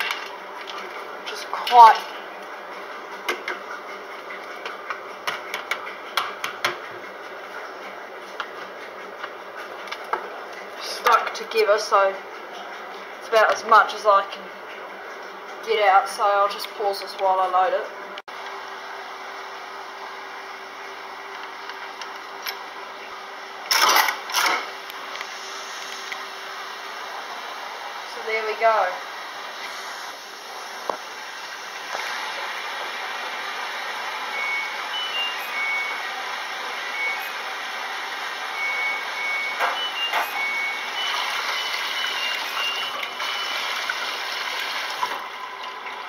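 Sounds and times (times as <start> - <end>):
metallic coin slide clatter: 23.7 - 24.7.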